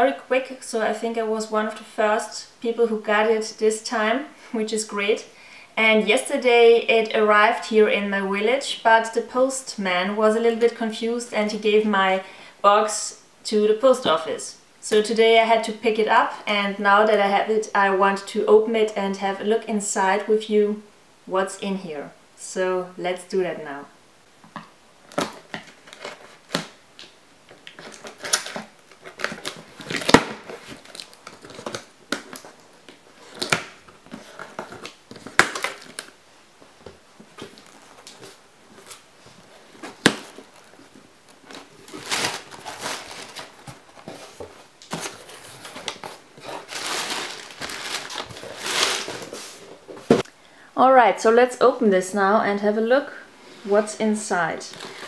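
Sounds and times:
cardboard crackling: 0:25.1 - 0:36.2, 0:36.8 - 0:50.2
packing paper rustling: 0:25.1 - 0:36.2, 0:36.8 - 0:50.2.

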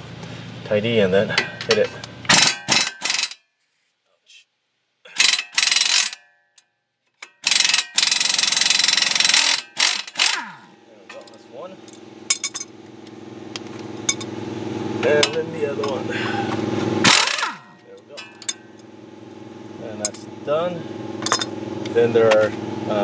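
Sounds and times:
pneumatic impact wrench: 0:02.3 - 0:03.4, 0:05.1 - 0:06.2, 0:07.2 - 0:10.7, 0:16.4 - 0:18.8
motor humming: 0:07.5 - 0:23.0.

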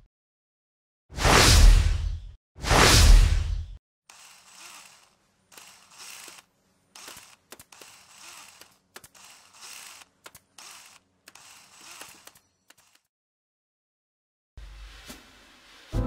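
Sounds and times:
sharp clicks and knocks: 0:07.0 - 0:13.1.

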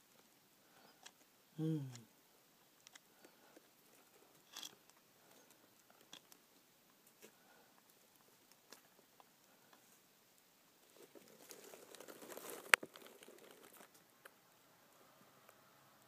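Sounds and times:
leaves crinkling and rustling: 0:10.8 - 0:14.3.

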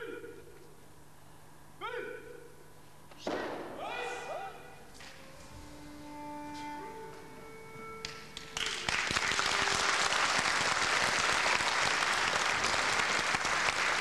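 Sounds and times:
instrumental music held notes: 0:05.0 - 0:10.4
audience applause: 0:08.4 - 0:14.0.

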